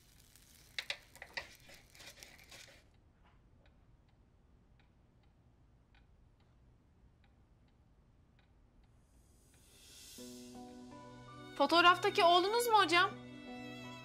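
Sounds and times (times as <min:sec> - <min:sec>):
clock ticking: 0:03.7 - 0:09.0.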